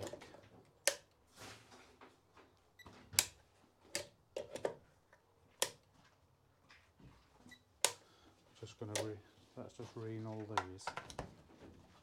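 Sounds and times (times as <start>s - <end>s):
plastic plug clicking in socket: 8.9s - 9.1s.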